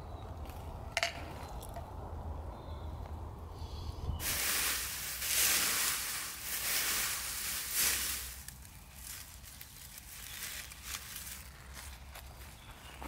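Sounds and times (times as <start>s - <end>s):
dry leaves rustling and crackling: 4.2s - 13.0s.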